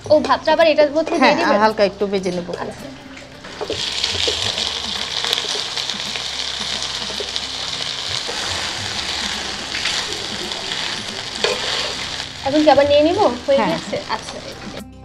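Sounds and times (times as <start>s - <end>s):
metal spatula stirring: 3.4s - 14.8s
rice sizzling in hot oil: 3.4s - 14.8s.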